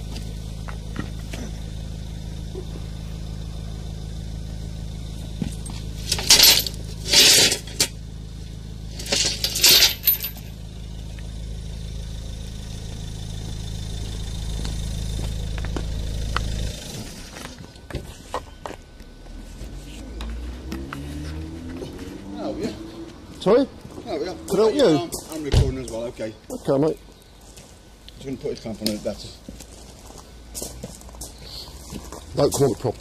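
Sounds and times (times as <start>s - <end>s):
steady low hum: 0.0s - 33.0s
clinking and rattling: 5.5s - 8.0s, 8.9s - 10.5s.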